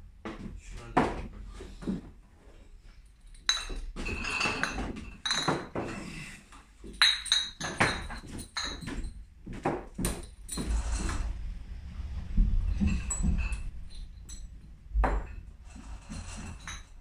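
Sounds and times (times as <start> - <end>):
glass bottles clinking: 3.3 - 6.2, 6.8 - 10.8, 12.8 - 17.0.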